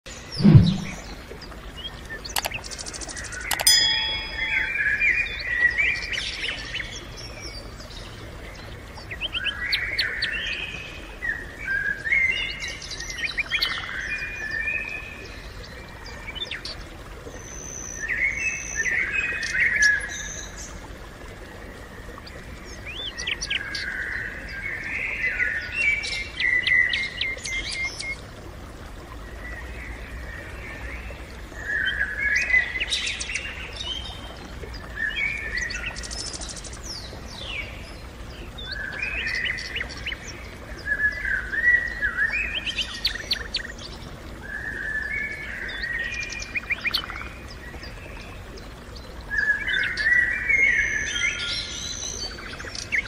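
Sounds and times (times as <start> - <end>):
songbird singing: 0.1 - 8.0
faint low rumble: 0.3 - 1.3
sharp clicks: 2.4 - 2.6.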